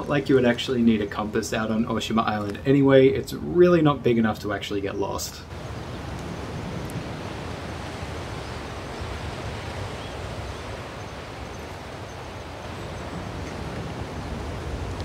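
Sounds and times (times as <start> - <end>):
sea surf breaking on rocks: 5.5 - 15.0.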